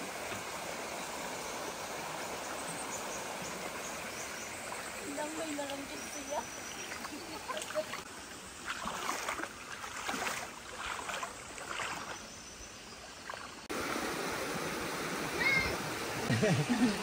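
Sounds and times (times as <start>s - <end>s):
shallow river over stones: 0.0s - 17.0s
small creek rushing: 0.0s - 17.0s
crunches and splashes: 6.8s - 12.2s.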